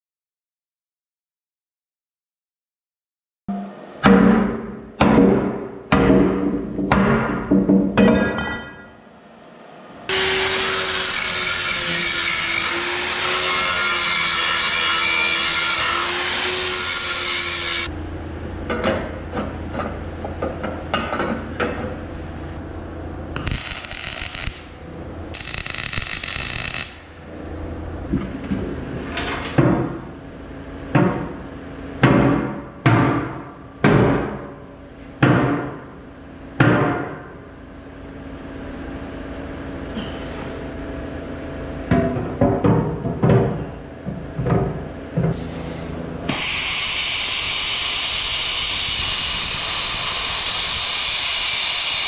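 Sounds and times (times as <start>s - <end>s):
metal knocks and clanks: 3.5s - 9.0s, 41.8s - 45.4s
power tool cutting steel: 10.1s - 17.9s, 23.3s - 27.1s, 46.3s - 52.0s.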